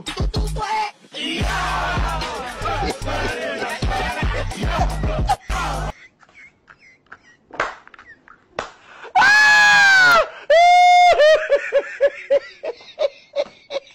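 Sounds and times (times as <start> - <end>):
shrill laughter: 2.8 - 8.4, 9.2 - 13.9.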